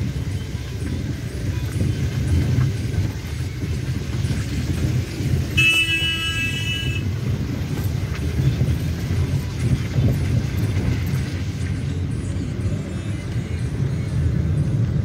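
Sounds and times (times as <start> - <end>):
car cabin rumble on rough road: 0.0 - 15.0
car horn honking: 5.5 - 7.2.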